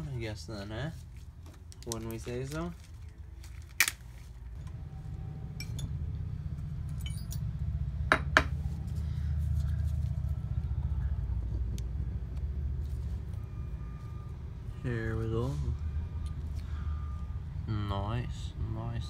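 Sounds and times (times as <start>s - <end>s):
metal tools clinking on wood: 6.9s - 7.5s.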